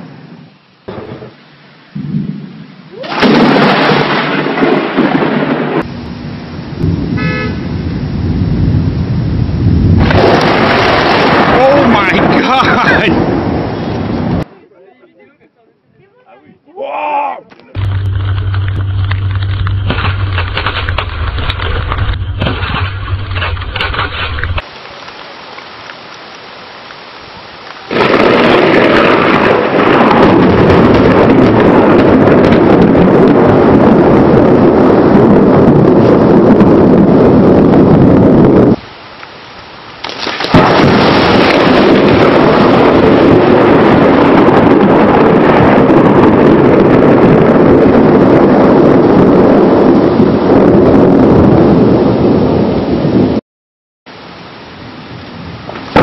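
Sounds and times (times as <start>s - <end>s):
steady rain: 0.0s - 14.5s, 23.2s - 37.9s, 38.7s - 47.3s, 54.1s - 56.0s
thunder rumbling: 0.9s - 14.5s, 17.8s - 24.6s, 27.9s - 38.8s, 40.2s - 53.4s, 55.4s - 56.0s
car horn toot: 7.2s - 7.7s
loud rushing noise: 17.8s - 24.6s.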